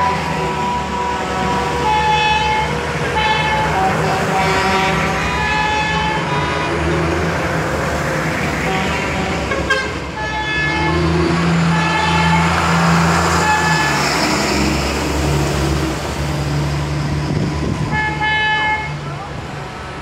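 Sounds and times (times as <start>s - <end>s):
vehicle engines running: 0.0s - 20.0s
tyres hissing on wet road: 10.8s - 20.0s.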